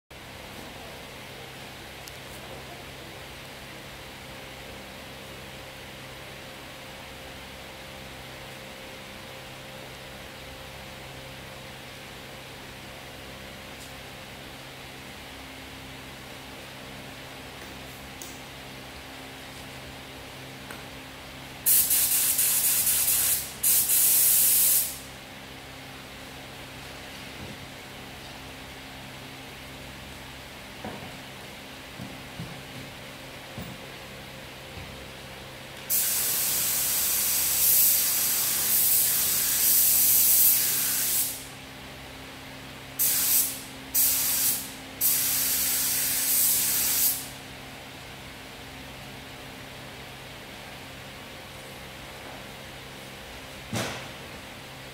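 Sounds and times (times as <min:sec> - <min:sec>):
spray gun hissing: 0:21.6 - 0:25.1, 0:35.9 - 0:41.5, 0:43.0 - 0:47.3.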